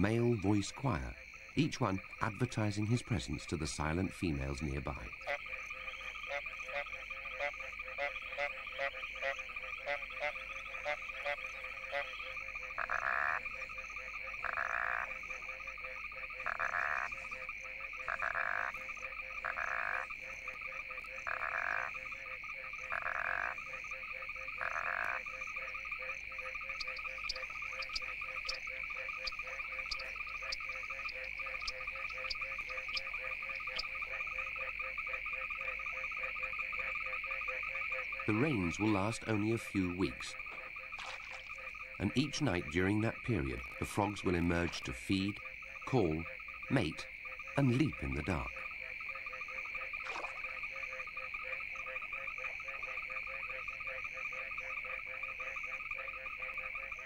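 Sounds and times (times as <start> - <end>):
frog chorus: 0.0 - 57.0
high clicking frog calls: 0.0 - 57.0
loud frog call: 0.0 - 57.0.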